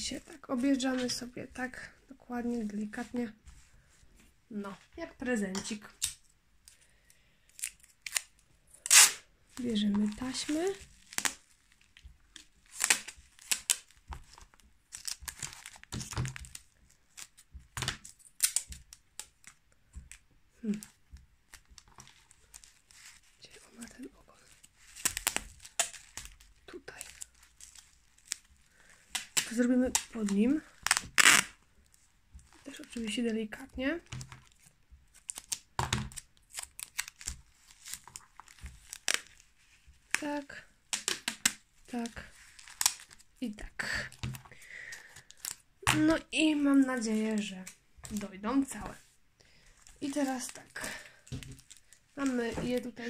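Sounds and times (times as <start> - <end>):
bundle rustling: 0.0 - 53.0
sticky tape tearing: 7.6 - 9.2, 18.0 - 19.3, 30.8 - 31.6
tape ripping: 7.6 - 9.3, 10.1 - 33.0, 34.0 - 40.2, 40.9 - 43.3
cloth rustling: 21.0 - 35.4.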